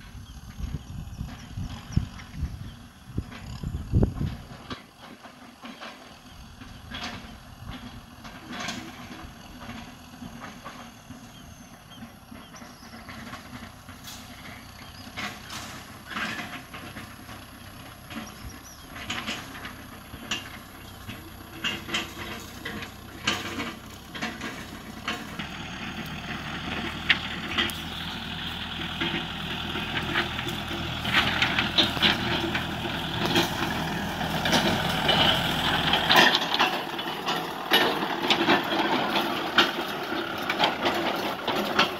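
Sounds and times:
tractor diesel engine running: 0.0 - 41.9
sharp clicks and knocks: 18.9 - 41.9.

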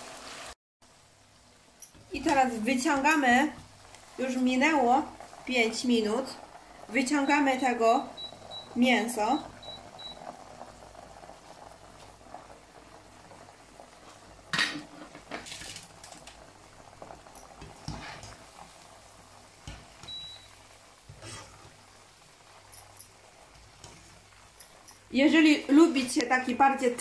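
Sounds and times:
oil bubbling in a wok: 0.0 - 27.0
metal utensils clinking: 22.6 - 25.1.

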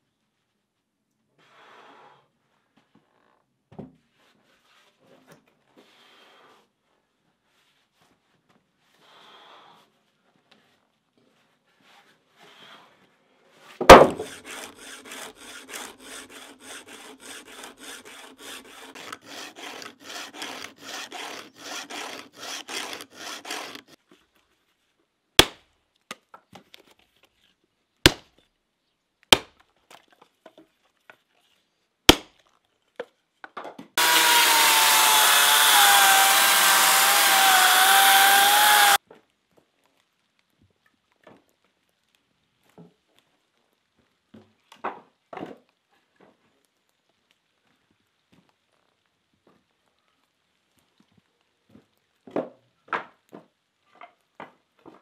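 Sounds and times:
hand saw strokes: 13.9 - 24.0, 34.0 - 39.0
chainsaw running at high revs: 14.2 - 24.0, 34.0 - 39.0.

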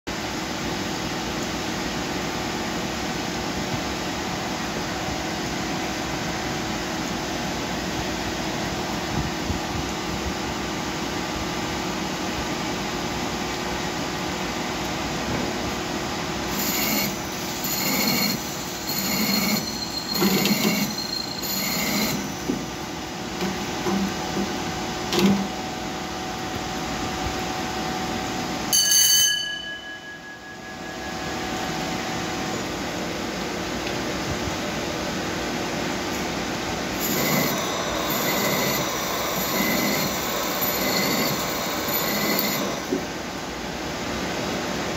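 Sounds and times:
lathe machine running: 16.4 - 26.6, 36.6 - 44.1
short high-pitched squeals: 16.5 - 22.8, 37.0 - 43.2.

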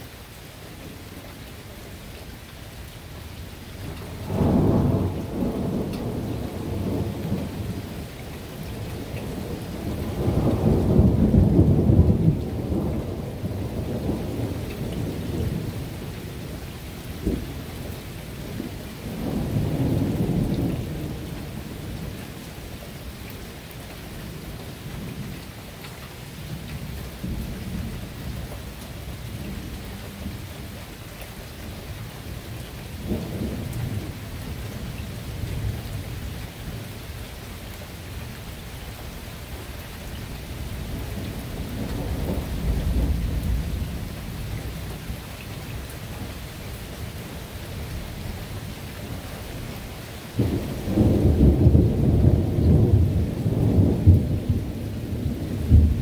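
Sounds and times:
steady rain: 0.0 - 56.0
rolling thunder: 3.9 - 8.0, 8.7 - 16.5, 18.5 - 22.1, 40.6 - 44.9, 50.4 - 56.0.

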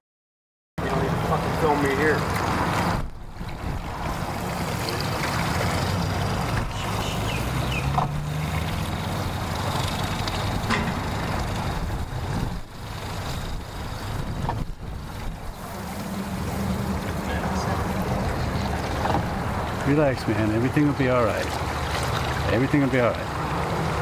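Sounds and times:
outboard motor idling: 0.8 - 24.0.

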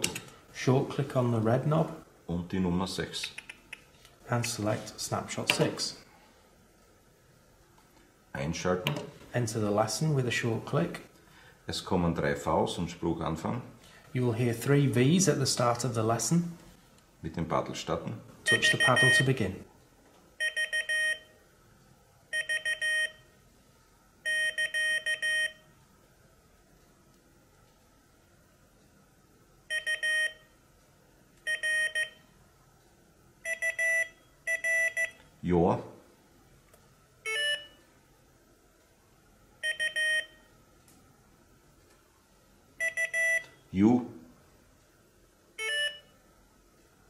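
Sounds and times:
morse code beeps: 18.5 - 19.3, 20.4 - 21.3, 22.3 - 23.2, 24.2 - 25.6, 29.7 - 30.5, 31.5 - 32.2, 33.4 - 35.2, 37.3 - 37.8, 39.6 - 40.5, 42.8 - 43.6, 45.6 - 46.2.

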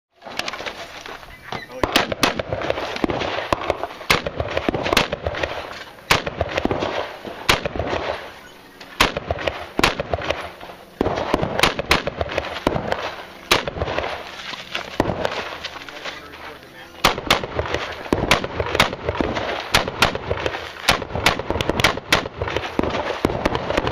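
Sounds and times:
rifle shots with echo: 1.6 - 23.9.

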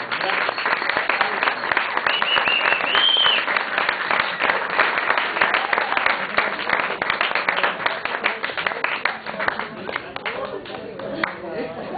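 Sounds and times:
audience applauding: 0.0 - 11.4
whistles: 2.0 - 3.5.

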